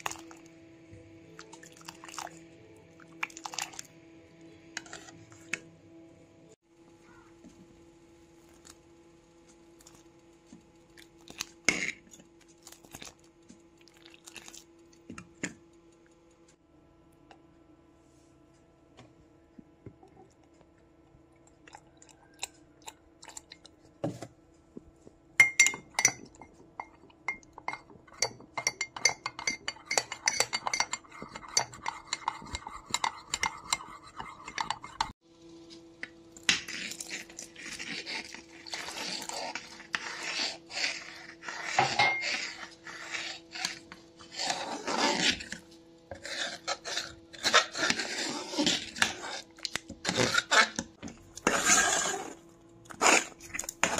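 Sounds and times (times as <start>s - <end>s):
spoon scraping a metal pot: 4.7s - 5.6s, 25.4s - 35.2s, 36.4s - 53.9s
metal spoon clinking in a cup: 25.4s - 35.1s.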